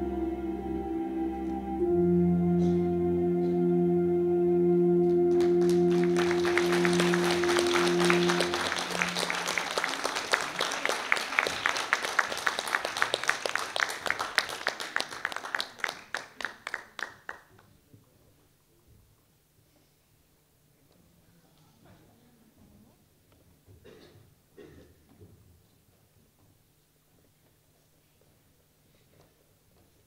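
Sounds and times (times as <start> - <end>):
song's held note: 0.0 - 10.2
audience applause: 5.3 - 17.5.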